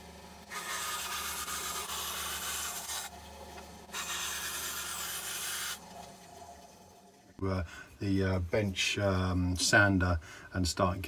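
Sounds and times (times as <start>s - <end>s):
bandsaw motor hum: 0.0s - 7.4s
bandsaw blade rasping through resin: 0.5s - 3.1s, 3.9s - 5.8s.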